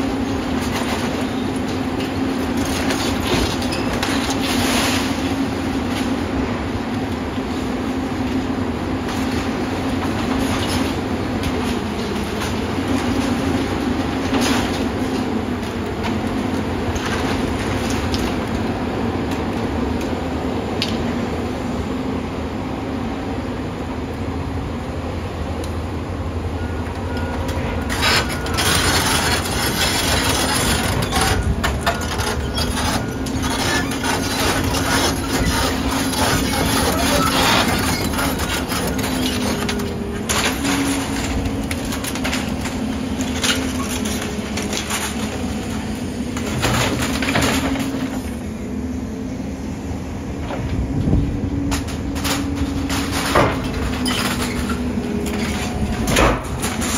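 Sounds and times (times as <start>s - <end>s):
excavator diesel engine running: 0.0s - 56.9s
debris crashing and scraping: 0.1s - 6.2s, 8.4s - 18.7s, 27.8s - 48.4s, 51.6s - 56.9s.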